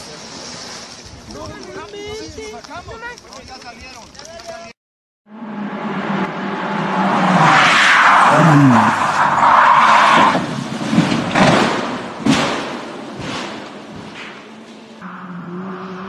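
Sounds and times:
tyres sliding on grit: 0.0 - 2.6
rally car engine: 5.3 - 16.0.

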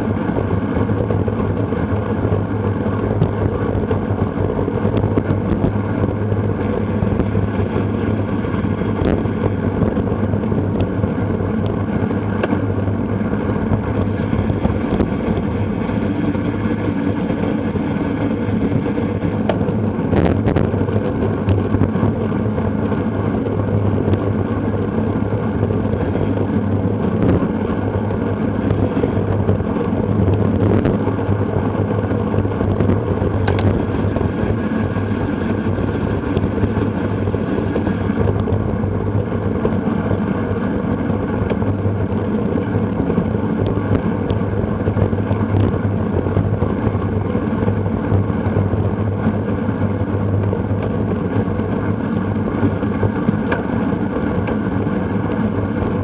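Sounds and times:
low hum: 0.0 - 56.0
wind rushing over microphone: 0.0 - 56.0.

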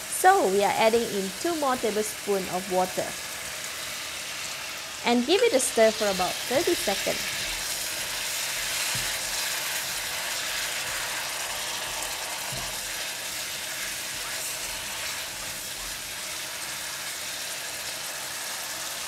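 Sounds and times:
sauce sizzling in a wok: 0.0 - 19.0
spatula scraping wok: 3.3 - 18.8.

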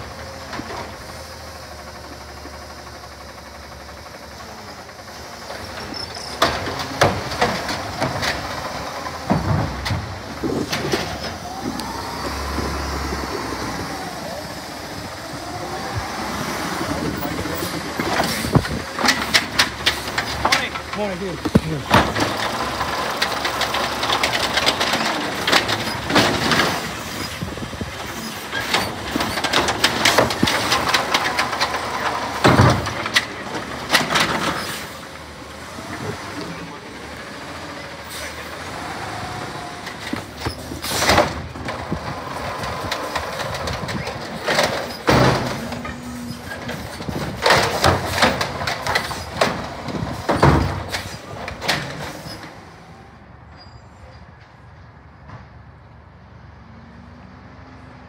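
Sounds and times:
garbage truck engine and hydraulics: 0.0 - 58.0
bangs and knocks of trash cart: 5.5 - 12.7, 16.0 - 35.1, 39.7 - 52.5.

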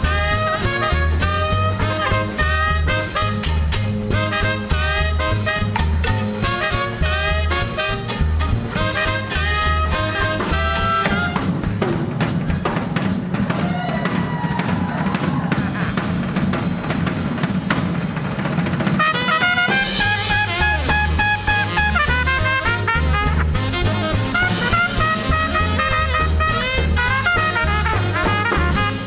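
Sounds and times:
trumpet and saxophone: 0.0 - 11.8, 18.9 - 29.0
walking bass: 0.0 - 17.3, 19.0 - 29.0.

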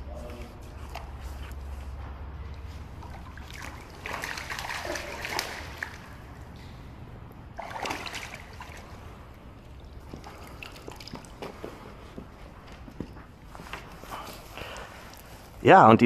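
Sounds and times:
water splashing: 2.5 - 12.0
fish thrashing at surface: 2.8 - 6.5, 7.5 - 11.9.

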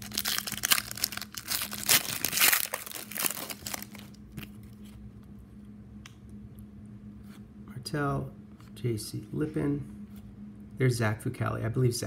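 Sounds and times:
foil wrapper crinkling and tearing: 0.0 - 4.6.

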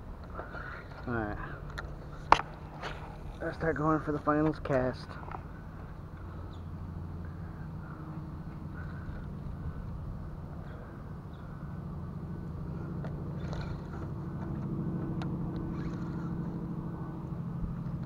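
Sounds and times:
electric motor humming: 5.1 - 18.0.

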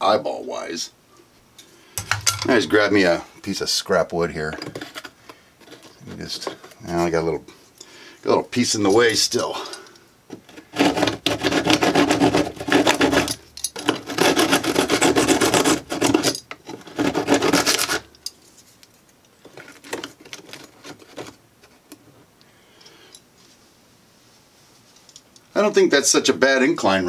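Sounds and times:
saw blade rasping: 10.6 - 18.1.

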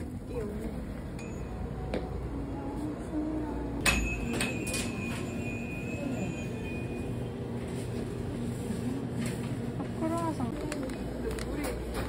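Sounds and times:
steady background hum: 0.0 - 12.0
sharp ringing clink: 3.8 - 6.9.

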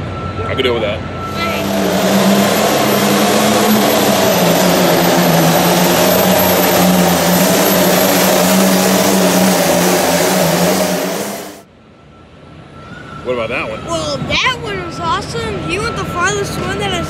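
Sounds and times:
tractor engine at full throttle: 1.2 - 11.6.

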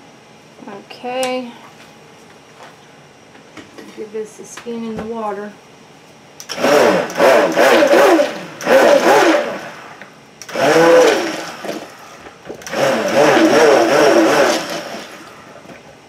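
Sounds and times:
stick blender whirring in water: 6.5 - 15.6.

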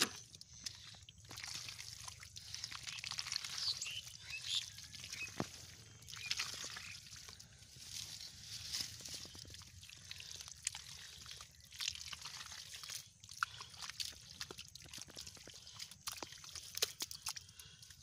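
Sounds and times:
hands squelching in wet mud: 0.0 - 18.0.

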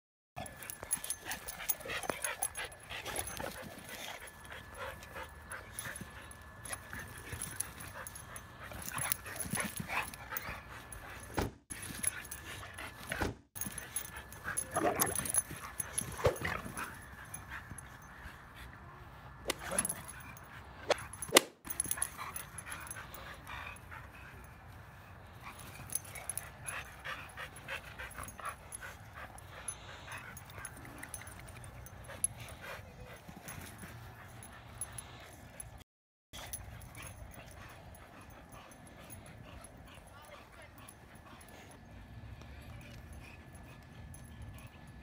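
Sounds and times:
dogs whimpering and yipping: 0.4 - 18.1, 25.4 - 35.8.

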